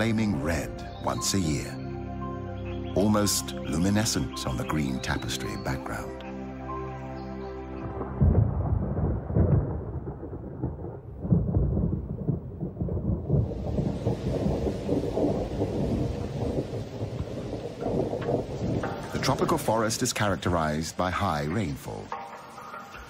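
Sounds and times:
thunder rumbling: 7.8 - 21.0
heavy rain hissing: 13.3 - 23.0.

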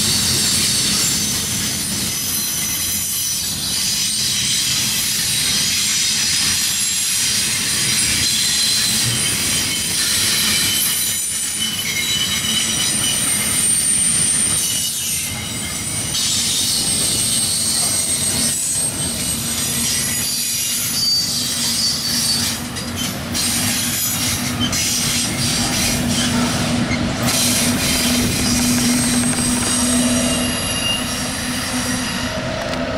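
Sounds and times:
steel wheels squealing: 0.0 - 32.9
train rumble and clatter: 0.0 - 32.9.

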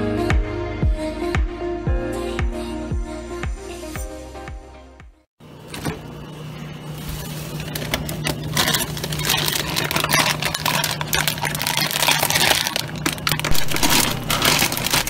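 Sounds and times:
plastic bag crinkling: 6.8 - 15.0.

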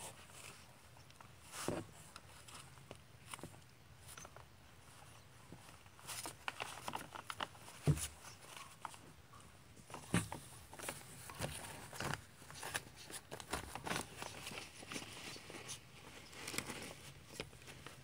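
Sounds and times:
newspaper rustling and crinkling: 5.6 - 9.1, 9.9 - 18.0.

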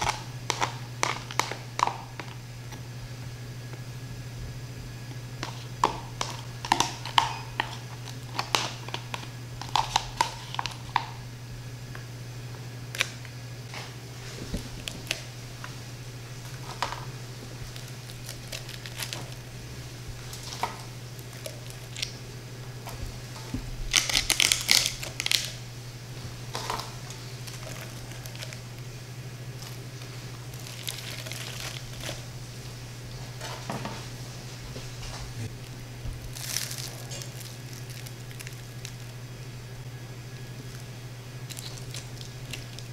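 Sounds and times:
crispy food crunching: 0.0 - 2.8, 5.4 - 11.2, 12.9 - 22.3, 22.9 - 25.6, 26.5 - 32.5, 35.5 - 39.2, 40.2 - 42.9
steady low hum: 0.0 - 42.9.

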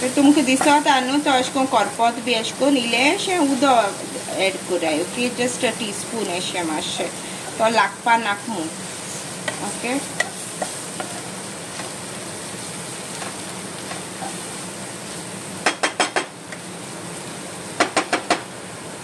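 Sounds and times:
food sizzling in a frying pan: 0.0 - 19.0
spatula knocking against pan: 15.6 - 16.3, 17.8 - 18.4.

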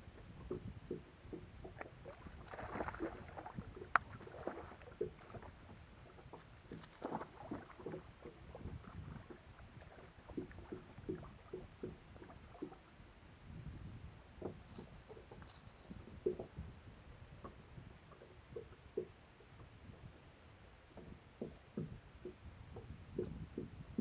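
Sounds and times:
water splashing against boat hull: 0.1 - 12.9, 14.4 - 16.8, 17.4 - 20.1, 20.9 - 24.0.

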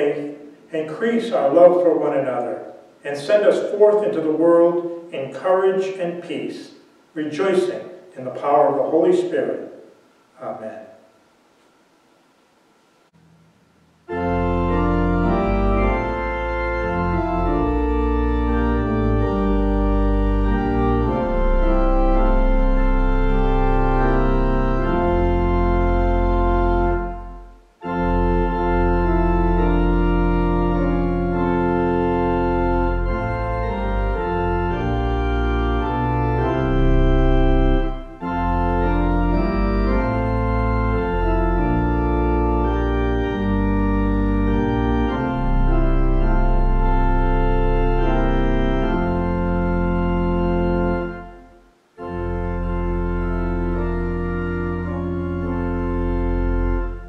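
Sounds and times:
organ playing slow chords: 0.0 - 11.2, 12.0 - 57.0.

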